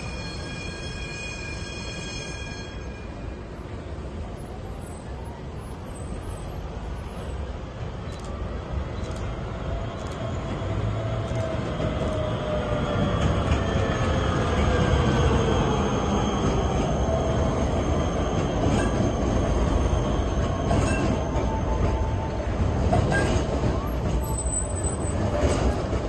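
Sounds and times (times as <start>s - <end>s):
high wheel squeal: 0.0s - 3.4s, 23.1s - 25.8s
tram wheels rumbling on rails: 0.0s - 26.0s
tram motor whine: 6.2s - 26.0s.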